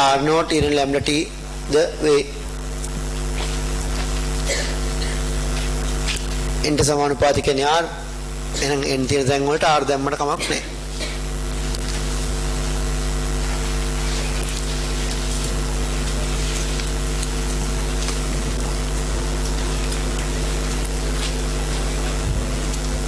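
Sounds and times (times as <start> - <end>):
electrical hum with tones: 0.0 - 23.0.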